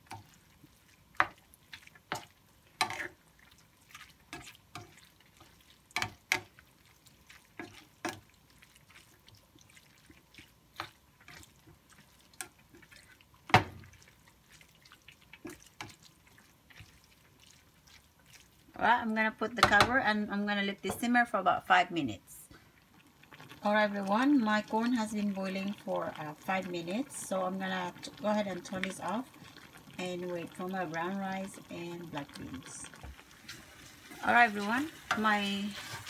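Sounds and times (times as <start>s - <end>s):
spatula scraping a metal pan: 2.8s - 3.2s, 33.5s - 36.0s.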